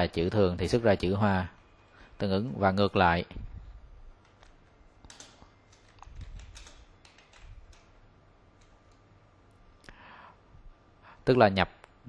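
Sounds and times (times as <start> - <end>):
keyboard typing: 4.2 - 8.0.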